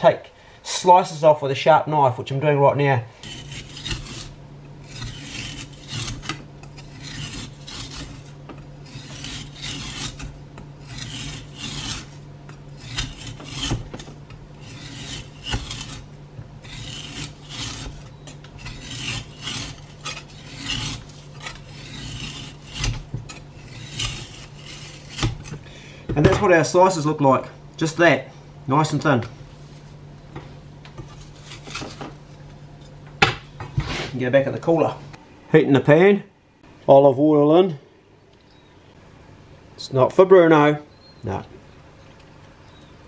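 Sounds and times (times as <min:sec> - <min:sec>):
knife slicing frozen meat: 0:03.2 - 0:25.6.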